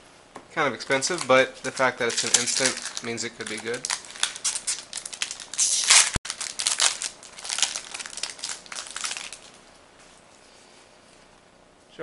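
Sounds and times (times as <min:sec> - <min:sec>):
foil wrapper tearing and crinkling: 0:00.9 - 0:09.6.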